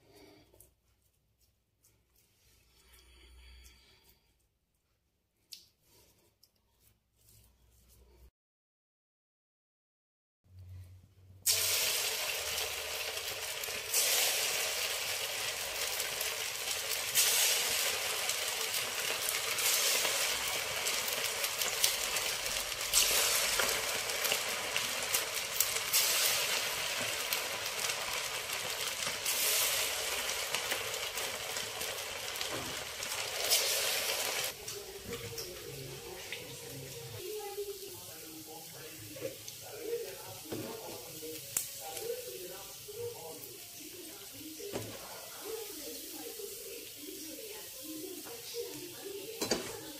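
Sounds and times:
batter sizzling in hot oil: 0:11.4 - 0:49.9.

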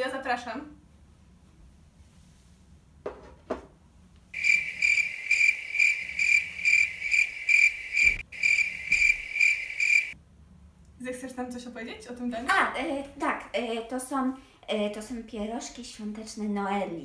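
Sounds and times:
cricket chirping: 0:04.4 - 0:10.2.

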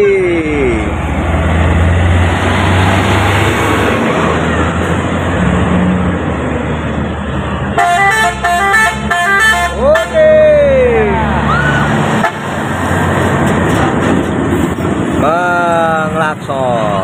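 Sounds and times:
diesel trucks passing: 0:00.0 - 0:17.0
multi-tone air horn: 0:07.8 - 0:10.2.

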